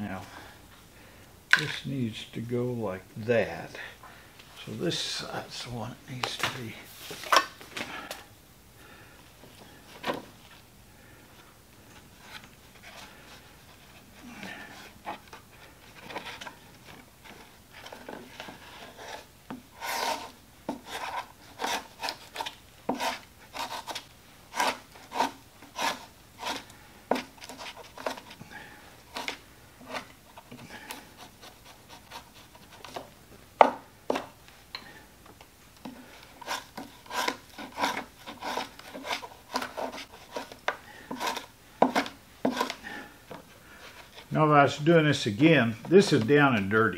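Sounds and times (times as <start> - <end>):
tool scraping leather: 13.8 - 28.4, 29.1 - 33.1, 35.8 - 44.3.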